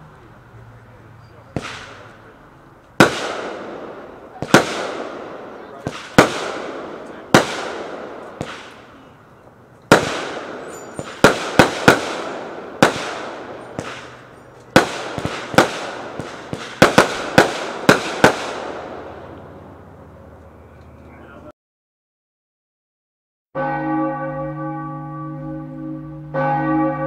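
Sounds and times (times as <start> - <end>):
firework bangs with echo: 1.5 - 2.3, 3.0 - 9.1, 9.9 - 19.4.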